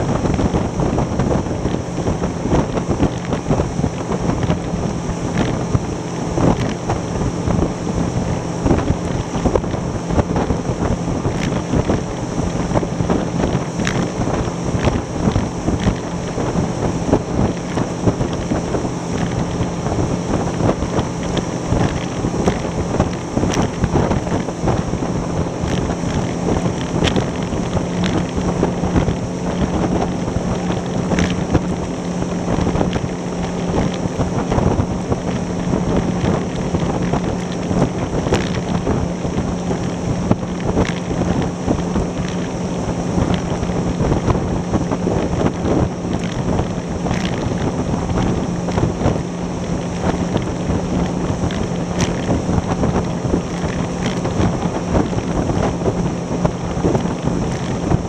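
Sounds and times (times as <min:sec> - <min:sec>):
hull slapping waves: 0:00.0 - 0:58.0
outboard engine running: 0:00.0 - 0:58.0
wind buffeting the microphone: 0:00.0 - 0:58.0.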